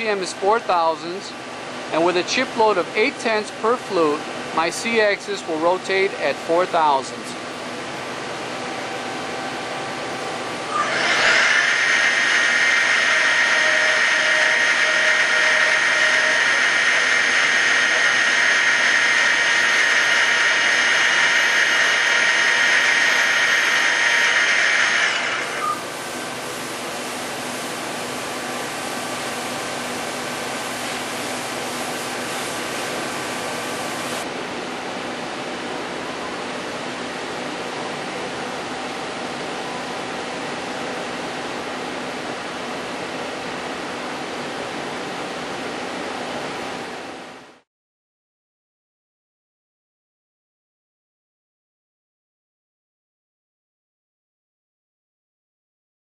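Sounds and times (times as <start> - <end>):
steady machine noise: 0.0 - 47.6
milling cutter high-pitched whine: 10.3 - 26.6.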